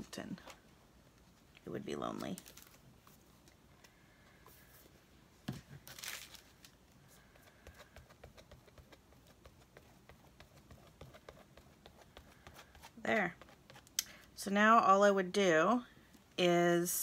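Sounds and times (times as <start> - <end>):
paper rustling: 5.5 - 6.8
glue brush tapping on paper: 7.5 - 13.9.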